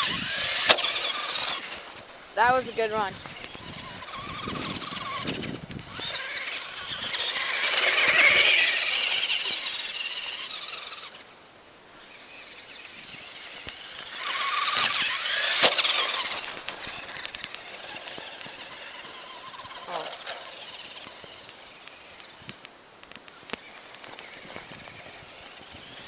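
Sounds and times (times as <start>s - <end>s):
toy truck electric motor whining: 0.0s - 11.4s, 12.0s - 22.5s, 23.5s - 26.0s.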